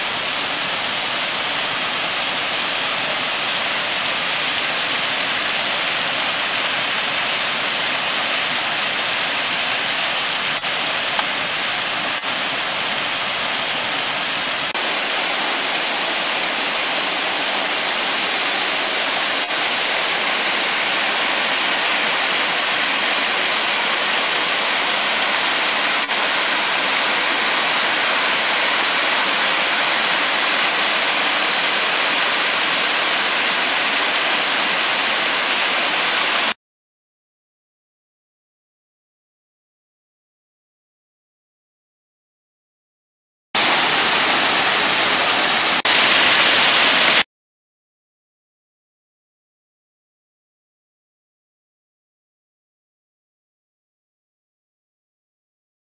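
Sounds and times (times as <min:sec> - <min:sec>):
small waterfall rushing: 0:00.0 - 0:36.6, 0:43.6 - 0:47.3.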